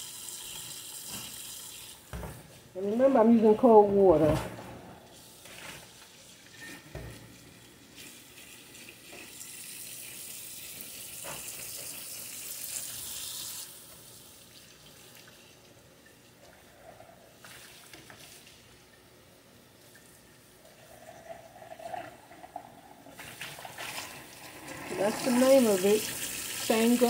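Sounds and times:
tap water running into sink: 6.9 - 15.4, 21.6 - 27.0.

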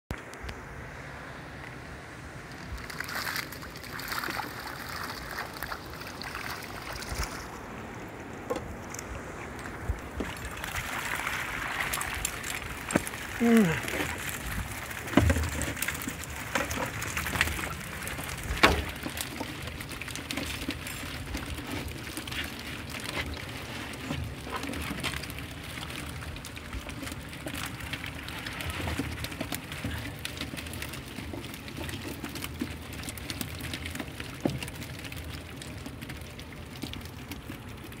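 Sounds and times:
water dripping from net: 2.8 - 7.4.

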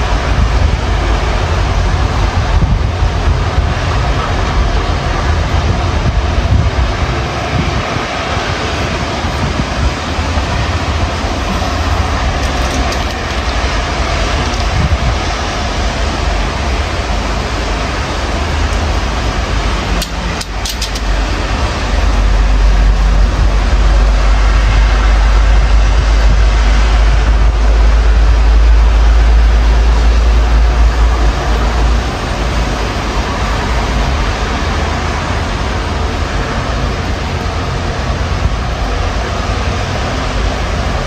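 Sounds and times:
deep rumble: 0.0 - 41.0
storm wind buffeting microphone: 0.0 - 41.0.

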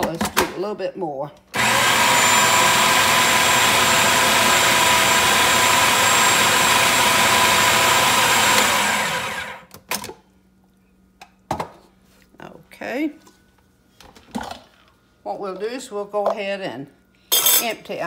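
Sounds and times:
food processor running: 1.6 - 9.7.

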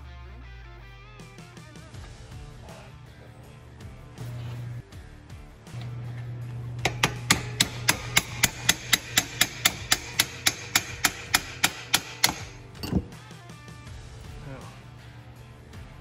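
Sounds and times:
hammer tapping on steel: 6.8 - 13.1.

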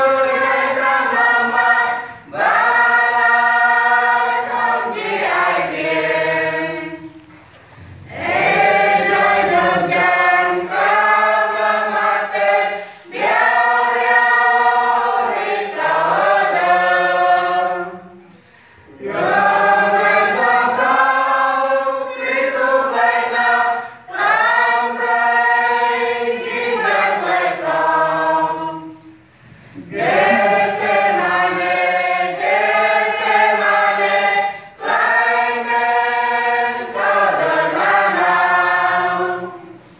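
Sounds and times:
choir singing a hymn: 0.0 - 39.9.

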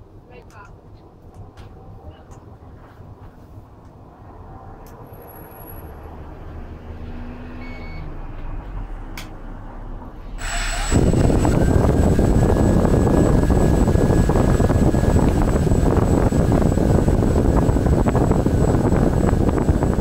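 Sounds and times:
high motor whine: 10.2 - 20.0
quadcopter propellers whirring: 10.4 - 20.0.

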